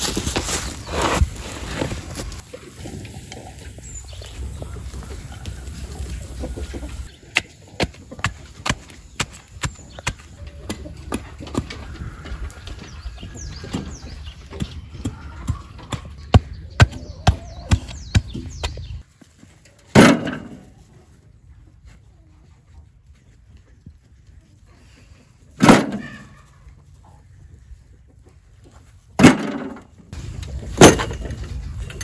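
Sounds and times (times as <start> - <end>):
concrete block set in wheelbarrow: 0.0 - 3.0, 29.2 - 32.0.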